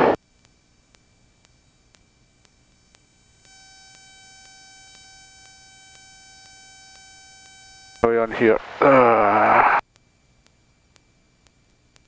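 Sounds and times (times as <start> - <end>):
soft electronic ticks: 0.2 - 8.2, 9.8 - 12.0
steady high pure tone: 2.4 - 9.8.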